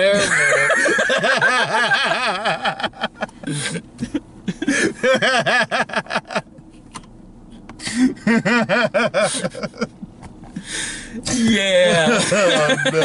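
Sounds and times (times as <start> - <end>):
men laughing: 0.0 - 6.6, 7.8 - 10.2, 11.8 - 13.0.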